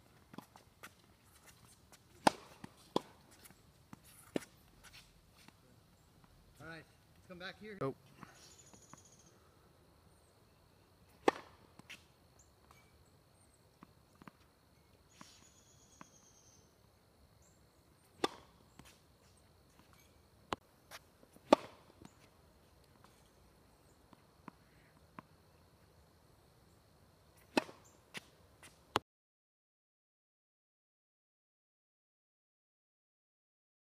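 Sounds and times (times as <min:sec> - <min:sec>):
racket hitting tennis ball: 0:00.3 - 0:05.5, 0:11.1 - 0:12.1, 0:18.0 - 0:22.3, 0:27.4 - 0:29.0
tennis ball bouncing: 0:00.3 - 0:05.5, 0:11.1 - 0:12.1, 0:18.0 - 0:23.2, 0:27.4 - 0:29.0.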